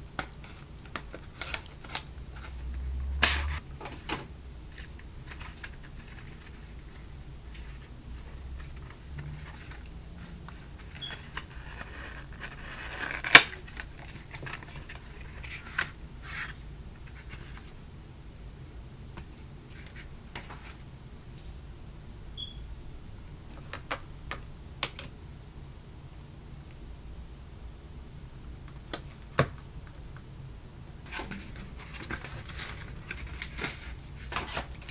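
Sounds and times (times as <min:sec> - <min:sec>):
packaging scraping and rustling: 0:04.8 - 0:17.7, 0:31.1 - 0:34.9.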